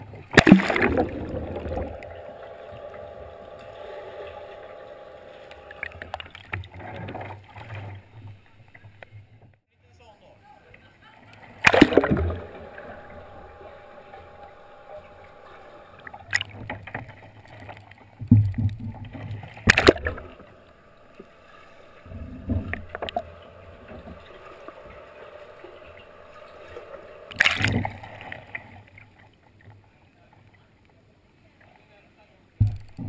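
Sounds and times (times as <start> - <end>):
muffled underwater noise: 0.0 - 9.4, 10.5 - 18.2, 18.8 - 29.2
water splashes and knocks: 0.0 - 9.6, 11.5 - 29.8, 32.6 - 33.0
loud splash of kayak rolling: 0.3 - 7.8, 11.5 - 17.2.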